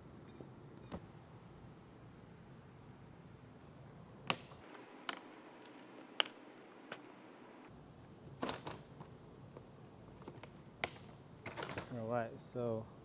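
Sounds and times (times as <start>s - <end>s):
plastic tabs clicking: 5.0s - 7.1s.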